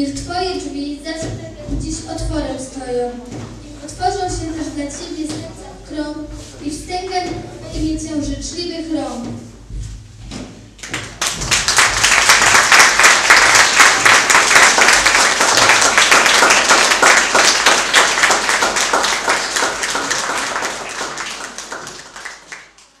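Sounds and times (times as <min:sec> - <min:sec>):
children clapping: 0:10.8 - 0:23.0.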